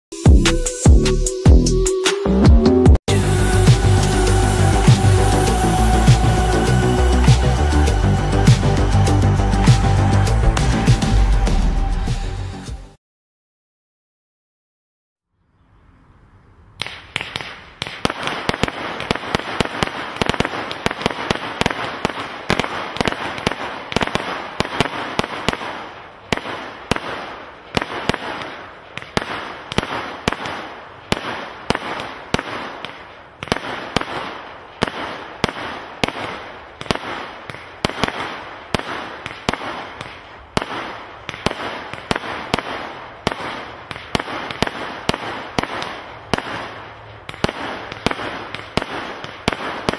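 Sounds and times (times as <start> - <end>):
firework crackling hiss: 3.1 - 11.2, 16.8 - 49.9
firework barrage shots and bursts: 16.8 - 49.9.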